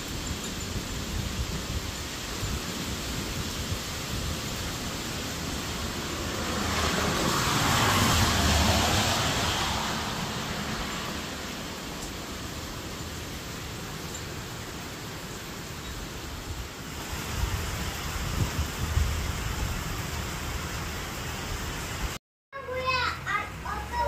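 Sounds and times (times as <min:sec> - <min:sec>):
heavy rain: 0:00.0 - 0:24.0
wind: 0:00.0 - 0:24.0
car passing on wet road: 0:03.6 - 0:15.2.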